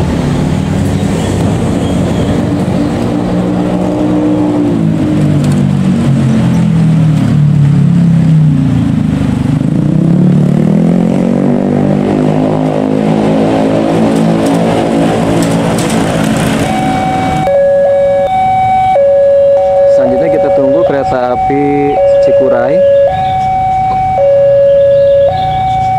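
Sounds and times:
motorcycle and car engines: 0:00.0 - 0:25.9
level crossing warning alarm: 0:16.5 - 0:25.9.

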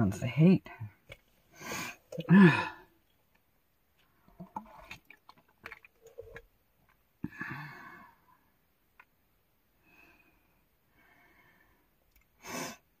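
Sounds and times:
woman sighing: 0:02.2 - 0:02.9, 0:07.2 - 0:08.1.

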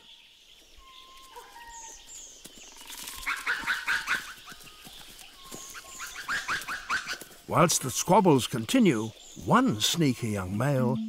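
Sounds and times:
lemurs yapping: 0:03.1 - 0:04.5, 0:05.8 - 0:07.3.

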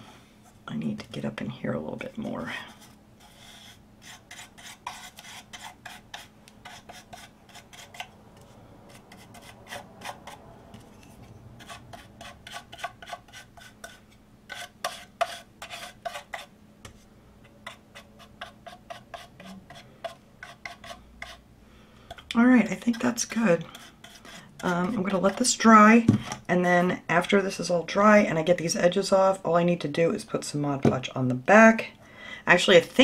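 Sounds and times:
paintbrush scratchy strokes: 0:02.4 - 0:21.4, 0:22.7 - 0:25.5.

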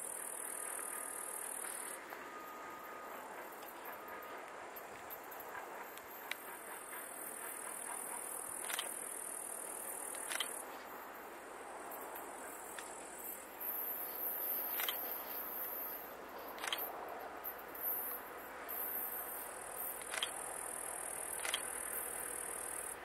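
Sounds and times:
insects chirring: 0:00.0 - 0:23.0.

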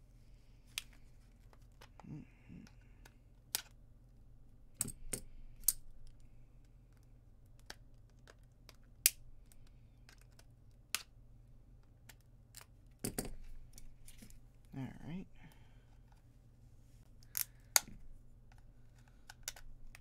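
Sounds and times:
steady low hum: 0:12.9 - 0:20.0.

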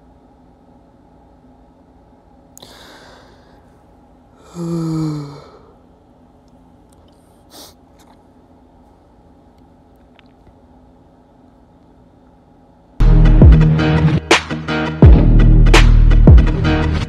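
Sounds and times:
low steady hum: 0:00.0 - 0:14.2
person sighing: 0:02.6 - 0:03.7, 0:04.4 - 0:05.9
faint breathing: 0:02.6 - 0:05.9.

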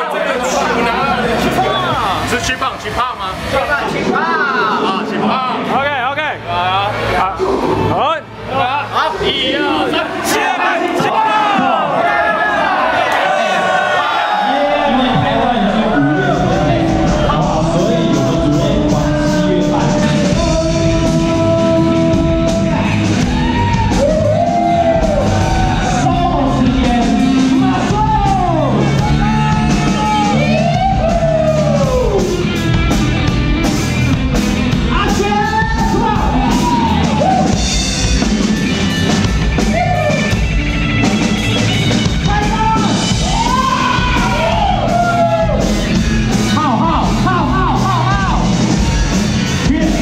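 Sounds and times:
electric and acoustic guitars: 0:14.3 - 0:50.0
man singing rock song: 0:15.8 - 0:23.2, 0:25.9 - 0:30.4.

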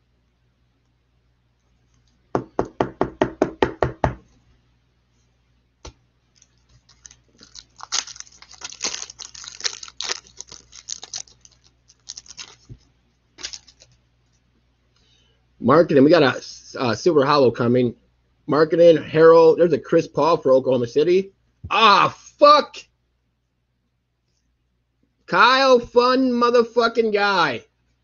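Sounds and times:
card pack wrapper tearing: 0:06.3 - 0:14.0.

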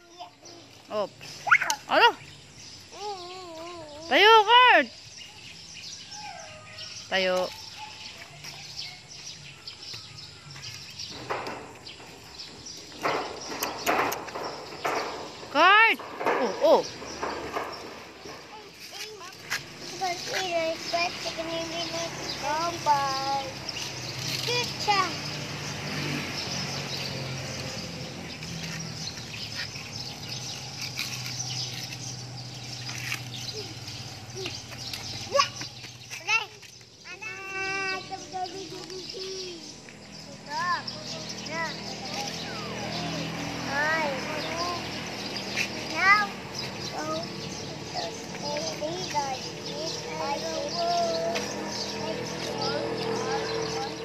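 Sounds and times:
insects: 0:00.0 - 0:54.0
small birds chirping: 0:00.0 - 0:54.0
short scuffing noises: 0:07.4 - 0:12.2, 0:17.5 - 0:20.6, 0:45.4 - 0:46.0.

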